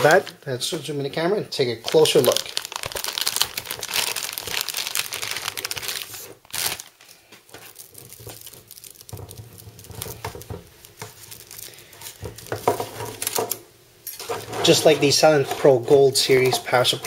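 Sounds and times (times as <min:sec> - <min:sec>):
plastic bag crinkling: 0:00.0 - 0:00.5, 0:01.6 - 0:13.6
cables rustling and clicking: 0:01.8 - 0:17.0.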